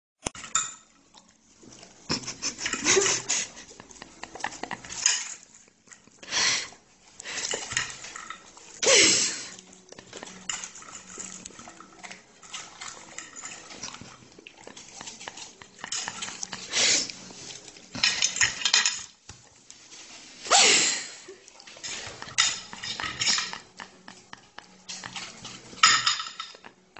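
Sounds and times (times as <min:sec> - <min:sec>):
dog eating noisily: 0:01.1 - 0:18.8, 0:21.3 - 0:25.8
fork clinking and scraping on plate: 0:21.8 - 0:26.8.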